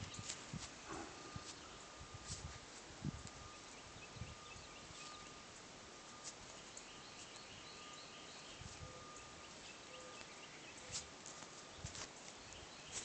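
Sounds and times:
faint steady hiss: 0:00.0 - 0:13.0
small bird chirps: 0:06.2 - 0:13.0.

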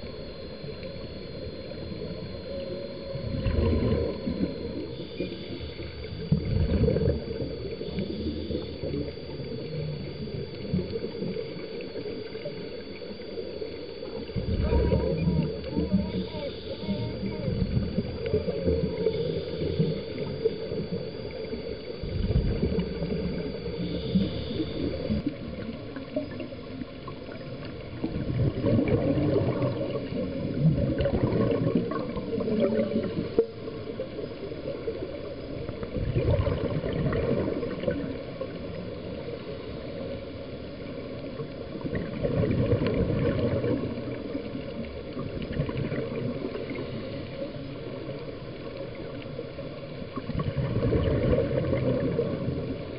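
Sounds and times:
faint high wavering whistle: 0:00.0 - 0:25.3
bubbling surges: 0:00.0 - 0:52.9
underwater water noise: 0:00.0 - 0:52.9.

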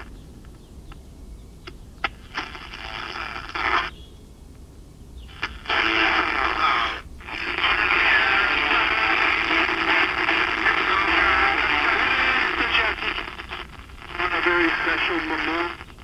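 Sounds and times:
pocket radio playing broadcast: 0:02.0 - 0:03.9, 0:05.3 - 0:16.0.

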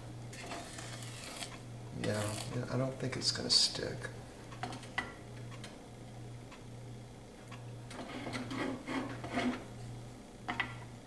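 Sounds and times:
wooden spoon scraping saucepan: 0:07.9 - 0:09.7.

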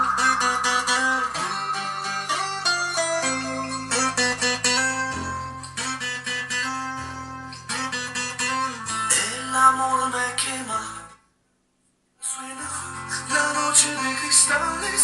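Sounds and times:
guitar music through loudspeaker: 0:00.0 - 0:11.1.

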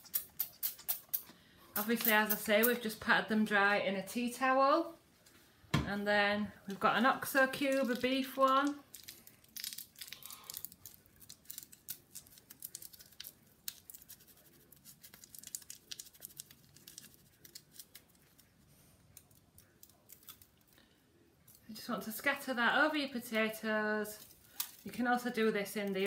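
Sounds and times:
foil wrapper crinkling: 0:07.6 - 0:20.6, 0:24.2 - 0:26.0.

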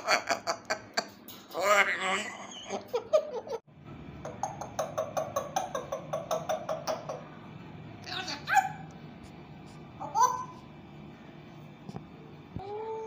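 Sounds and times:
parrot calling: 0:04.3 - 0:07.3, 0:08.0 - 0:08.9, 0:10.0 - 0:10.7.

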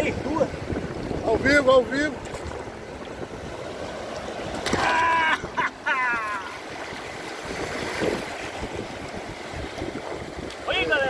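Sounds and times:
wind on microphone: 0:00.0 - 0:03.7, 0:04.8 - 0:11.0
surf washing: 0:00.0 - 0:11.0
high cry: 0:04.8 - 0:06.5.

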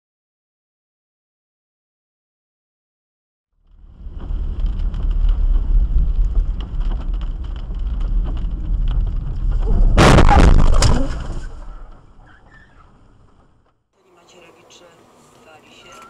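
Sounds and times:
rain pattering on windshield: 0:03.7 - 0:09.8
tyres on wet road: 0:03.7 - 0:09.8
car crash: 0:03.7 - 0:13.6
bang: 0:03.8 - 0:13.6.

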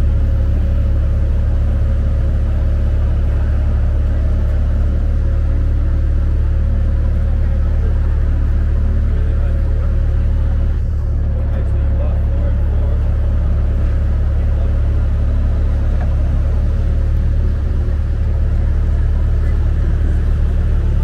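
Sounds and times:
cars moving through intersection: 0:00.0 - 0:21.0
low rumble: 0:00.0 - 0:21.0.

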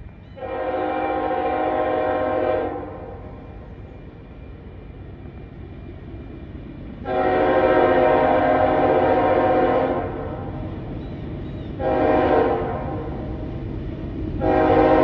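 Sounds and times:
train low rumble: 0:00.0 - 0:15.0
locomotive air horn blasts: 0:00.4 - 0:03.2, 0:07.0 - 0:10.5, 0:11.8 - 0:13.2, 0:14.4 - 0:15.0.

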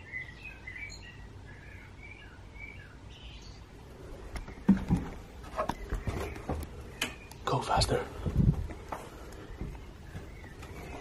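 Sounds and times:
bird chirping: 0:00.0 - 0:11.0
sharp knocks and thumps: 0:04.4 - 0:07.2.

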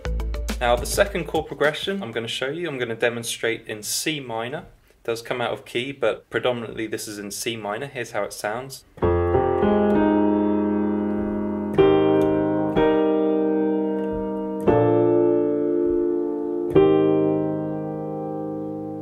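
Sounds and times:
piano chords: 0:09.0 - 0:19.0.

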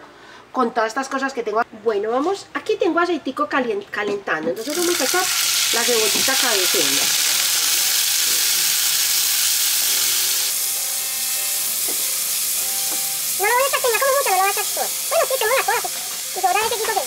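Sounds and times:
onion sizzling in hot oil: 0:04.6 - 0:17.0.

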